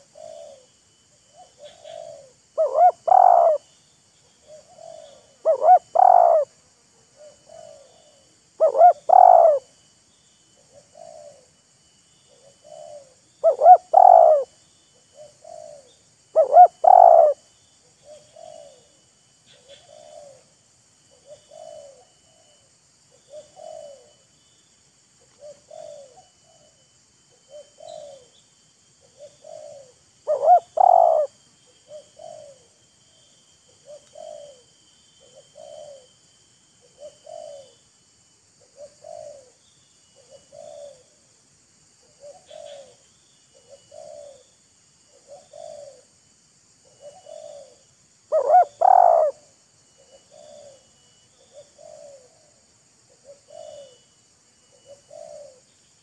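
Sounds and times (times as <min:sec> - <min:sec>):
doves cooing: 0:00.0 - 0:00.7, 0:01.3 - 0:03.7, 0:04.4 - 0:06.6, 0:07.2 - 0:09.7, 0:12.3 - 0:14.5, 0:15.1 - 0:17.4, 0:18.0 - 0:20.5, 0:21.1 - 0:24.2, 0:25.2 - 0:26.8, 0:27.4 - 0:28.4, 0:29.0 - 0:32.7, 0:33.8 - 0:36.1, 0:36.8 - 0:37.8, 0:38.6 - 0:39.6, 0:40.2 - 0:41.2, 0:42.0 - 0:44.5, 0:45.1 - 0:46.1, 0:46.8 - 0:54.0, 0:54.6 - 0:55.7.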